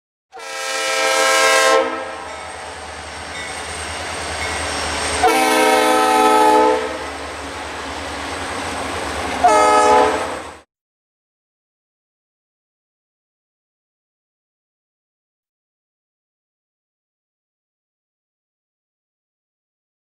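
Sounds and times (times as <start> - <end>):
locomotive horn blasts: 0.3 - 2.6, 5.2 - 7.2, 9.4 - 10.5
train rumble: 1.9 - 10.6.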